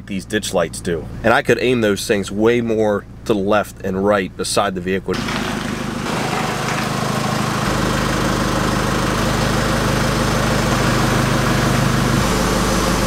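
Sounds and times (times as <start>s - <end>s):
diesel truck engine running: 5.1s - 13.0s.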